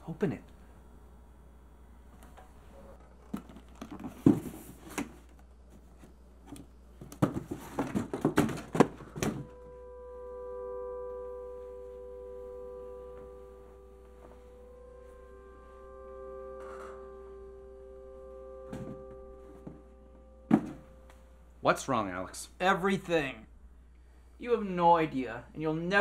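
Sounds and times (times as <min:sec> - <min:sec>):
soft sustained music chord: 0:09.2 - 0:22.3.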